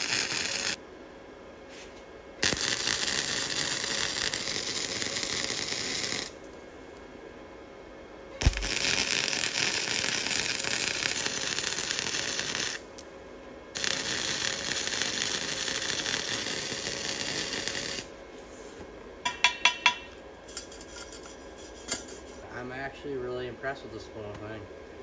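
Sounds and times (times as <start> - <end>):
welding arc crackling: 0.0 - 0.8, 2.4 - 6.5, 8.4 - 13.1, 13.7 - 18.2.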